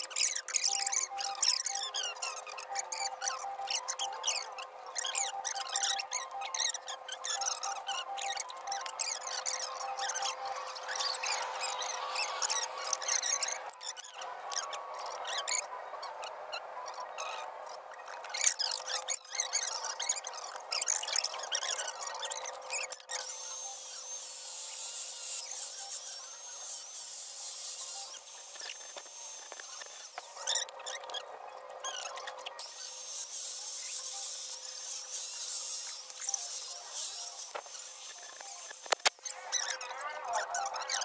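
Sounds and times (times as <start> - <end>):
small birds chirping: 0.0 - 33.0
angle grinder grinding metal: 20.8 - 31.0, 32.1 - 39.8.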